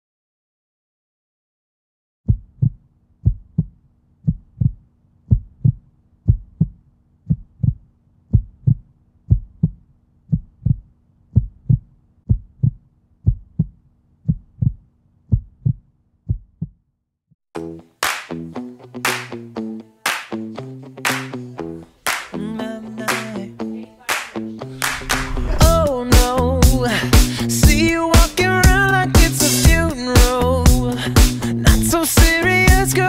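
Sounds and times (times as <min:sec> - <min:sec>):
heartbeat thumps: 0:02.3 - 0:16.8, 0:24.8 - 0:29.8
music: 0:17.6 - 0:33.0.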